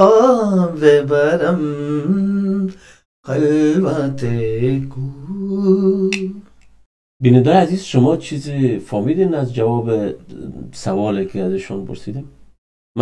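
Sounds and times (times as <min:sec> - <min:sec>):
man singing unaccompanied: 0:00.0 - 0:06.5.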